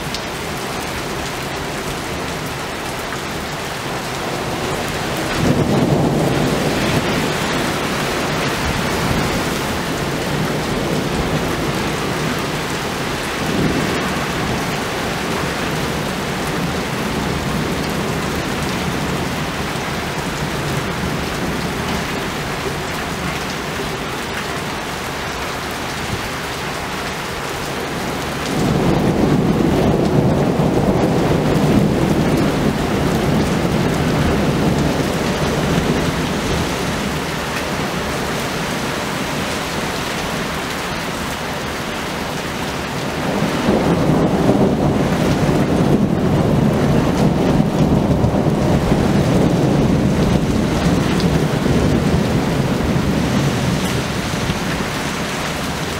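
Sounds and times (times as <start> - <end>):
heavy rain falling: 0.0 - 55.9
rumble of thunder: 4.3 - 22.1, 28.2 - 38.1, 43.1 - 55.2.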